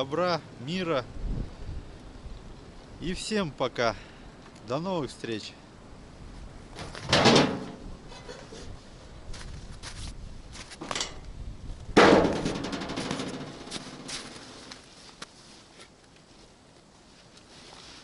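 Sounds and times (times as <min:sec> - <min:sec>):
hood shutting with a ringing bang: 0:12.0 - 0:14.3
hood knocking: 0:12.0 - 0:14.5.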